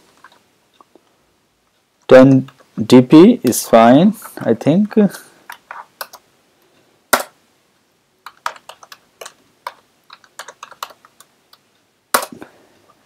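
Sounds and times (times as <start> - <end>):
computer keyboard typing: 5.5 - 6.2, 8.2 - 12.3.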